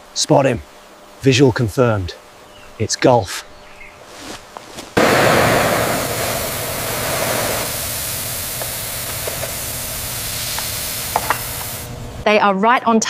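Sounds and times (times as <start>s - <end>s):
steam hissing from pipework: 5.0s - 12.0s.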